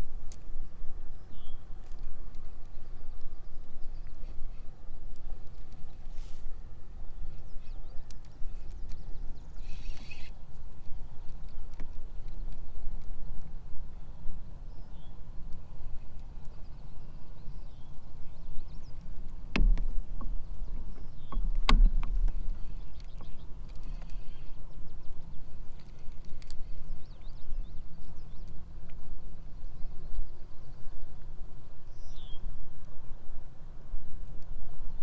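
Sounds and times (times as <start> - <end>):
open water rumble: 0.0 - 35.0
faint bird chirps: 1.1 - 1.7, 7.2 - 11.3, 14.6 - 15.2, 22.4 - 28.6, 31.9 - 33.1
sharp knocks on kayak: 19.6 - 20.3, 21.6 - 22.4.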